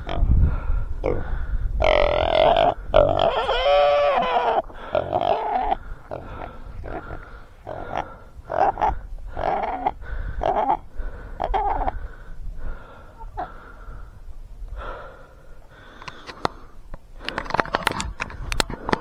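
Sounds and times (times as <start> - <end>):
person panting hard: 0.3 - 1.8, 4.6 - 17.6
sharp clicks and rustles: 16.0 - 19.0.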